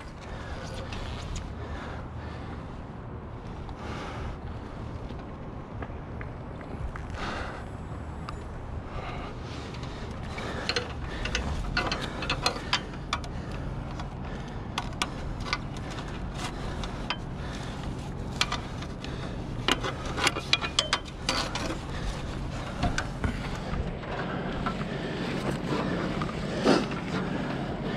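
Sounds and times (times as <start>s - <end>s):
steady low hum: 0.0s - 27.9s
metal clicks and knocks on ladder: 10.4s - 17.4s, 18.3s - 24.8s.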